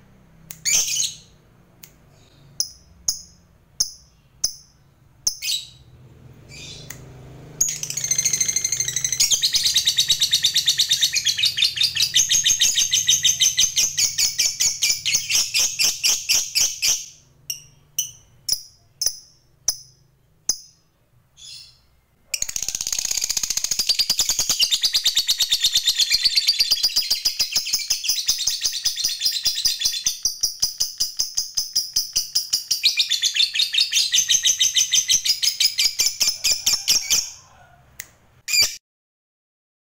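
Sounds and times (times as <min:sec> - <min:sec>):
bird chirps: 0:00.6 - 0:01.4, 0:02.1 - 0:07.0, 0:07.6 - 0:37.4
bird chattering trill: 0:07.6 - 0:19.4, 0:22.4 - 0:37.4.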